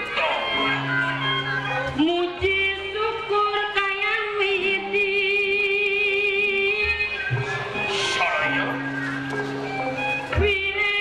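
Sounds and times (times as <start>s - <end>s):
gamelan ensemble: 7.0s - 10.8s.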